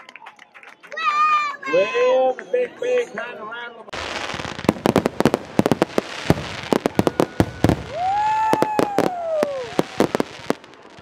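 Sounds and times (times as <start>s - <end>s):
fireworks bangs and pops: 3.9s - 11.0s
firework whistle: 6.3s - 11.0s.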